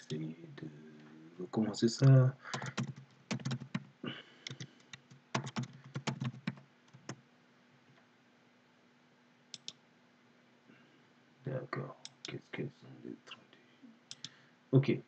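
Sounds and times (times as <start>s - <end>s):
quick clicks: 2.0s - 3.8s, 4.4s - 7.2s, 9.5s - 9.8s, 12.0s - 12.4s, 14.1s - 14.4s
typing on keyboard: 2.5s - 7.2s, 9.6s - 9.8s, 14.1s - 14.4s.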